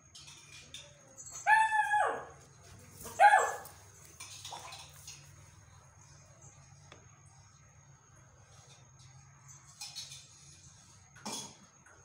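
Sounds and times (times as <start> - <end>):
puppy yowling barks: 1.4 - 2.4, 3.1 - 3.8.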